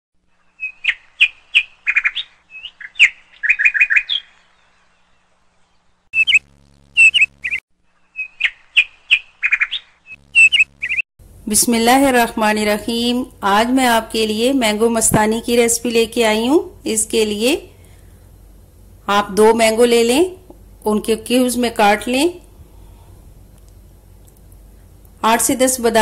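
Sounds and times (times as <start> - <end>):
bird chirping: 0.3 - 11.0.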